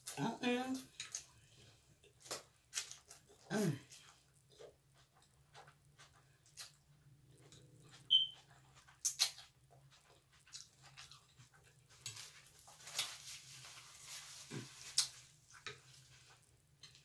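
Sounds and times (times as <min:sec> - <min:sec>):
chewing and lip smacks: 0:00.9 - 0:12.7
paper napkin crinkling: 0:12.1 - 0:15.3.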